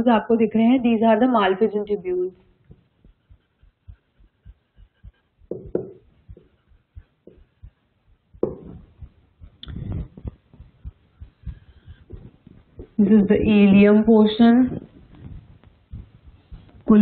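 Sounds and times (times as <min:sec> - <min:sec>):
marker tapping on whiteboard: 0:02.7 - 0:07.7, 0:08.4 - 0:13.0
marker scratching on whiteboard: 0:02.7 - 0:09.0.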